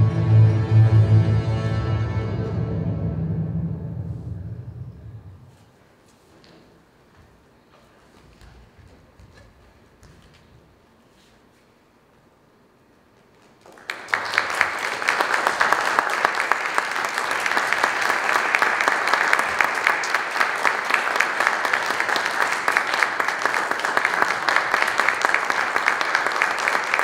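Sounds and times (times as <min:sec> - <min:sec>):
audience applauding: 0:13.4 - 0:27.0.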